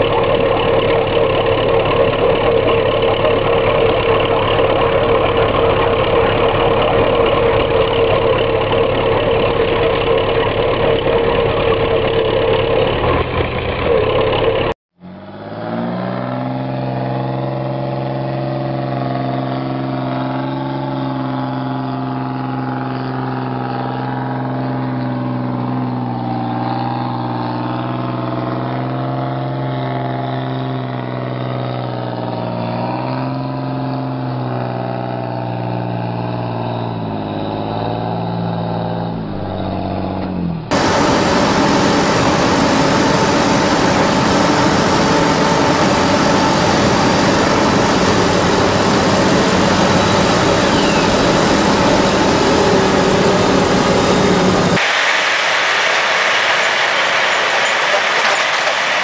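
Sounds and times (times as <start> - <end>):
tractor engine under load: 0.0 - 59.0
truck diesel engine revving: 0.0 - 59.0
wheels spinning in clay: 55.8 - 59.0.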